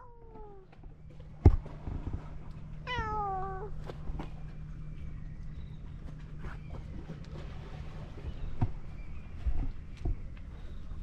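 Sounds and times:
cat meowing: 0:02.9 - 0:03.7.

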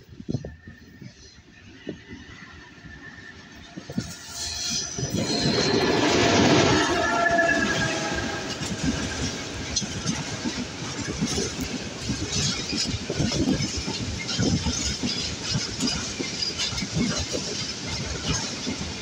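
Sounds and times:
diesel locomotive drone: 0:00.0 - 0:14.6
train rumble: 0:00.0 - 0:19.0
train wheels clattering on rails: 0:00.0 - 0:19.0.

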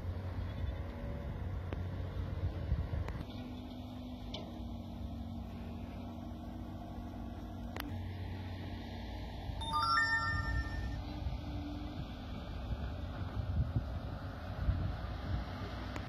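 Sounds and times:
distant engine hum: 0:00.0 - 0:09.6
wind rumbling on microphone: 0:12.8 - 0:15.5.

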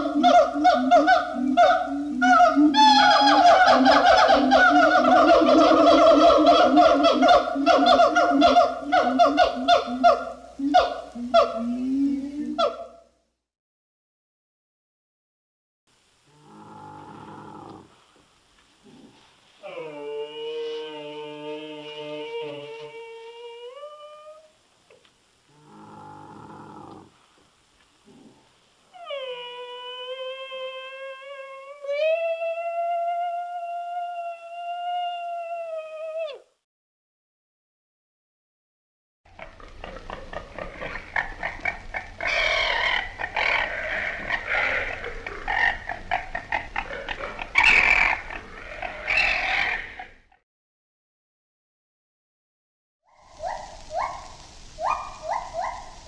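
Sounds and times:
camel calling: 0:39.4 - 0:50.2.

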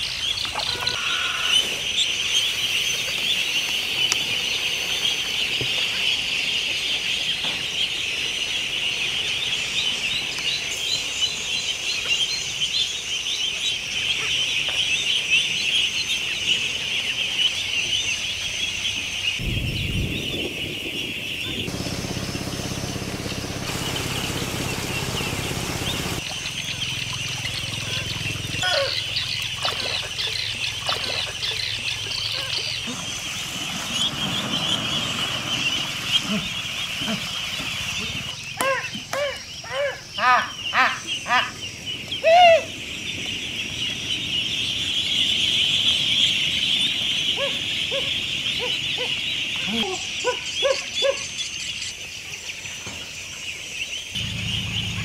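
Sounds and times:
ducklings peeping: 0:00.0 - 0:55.0
water splashing into pool: 0:21.7 - 0:38.4.

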